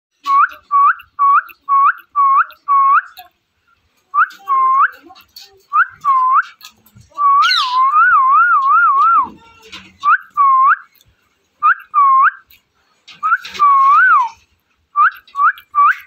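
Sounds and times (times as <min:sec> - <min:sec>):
parakeet whistling: 0:07.2 - 0:09.2.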